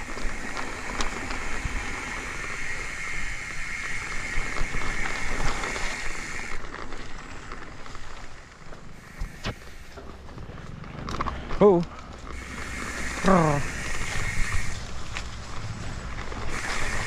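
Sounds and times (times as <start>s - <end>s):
steady high hiss: 0.0s - 6.6s, 9.0s - 10.1s, 12.4s - 15.0s, 16.5s - 17.0s
bike tyres rushing over grass: 0.0s - 17.0s.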